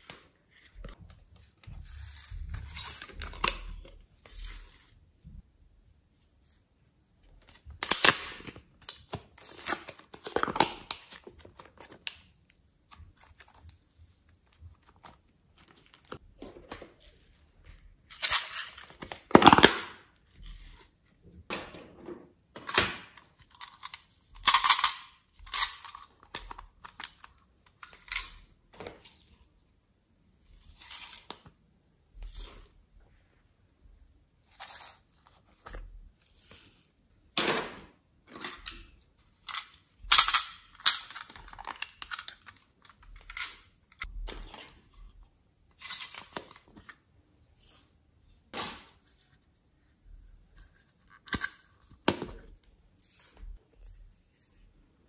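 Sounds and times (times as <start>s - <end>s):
plastic containers clicking and crinkling: 7.4s - 20.1s, 37.4s - 44.9s.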